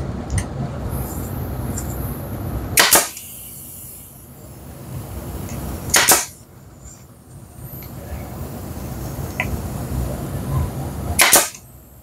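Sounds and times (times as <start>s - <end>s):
nail gun firing into wood: 2.8s - 3.3s, 5.9s - 6.4s, 11.2s - 11.6s.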